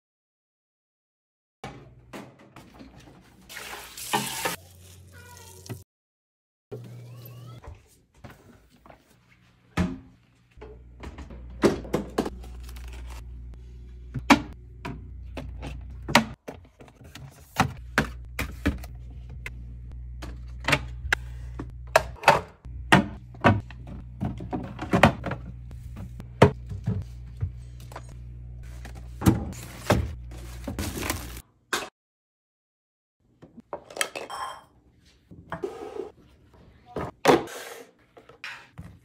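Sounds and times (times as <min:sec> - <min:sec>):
refrigerator low hum: 0:08.4 - 0:31.5.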